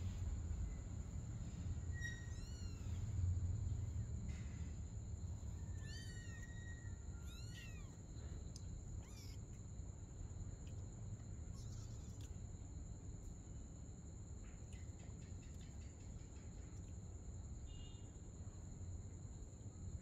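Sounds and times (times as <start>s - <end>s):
kittens mewing: 2.0s - 3.1s, 5.6s - 8.0s, 9.0s - 9.6s.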